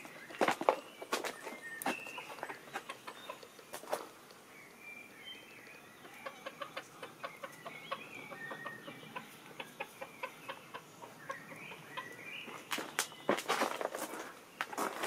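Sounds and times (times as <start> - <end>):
high whistled bird calls: 0.1 - 13.4
chicken clucking softly: 6.0 - 12.2.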